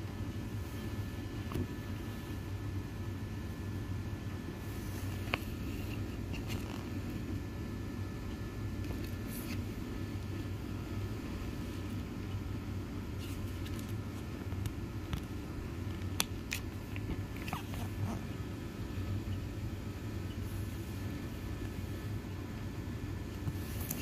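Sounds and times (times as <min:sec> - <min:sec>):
brochure pages rustling: 0:13.2 - 0:14.7.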